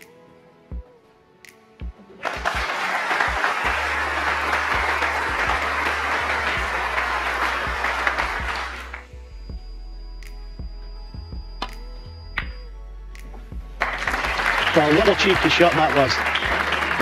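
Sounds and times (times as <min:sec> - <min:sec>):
audience applauding: 0:02.2 - 0:09.1, 0:13.8 - 0:17.0.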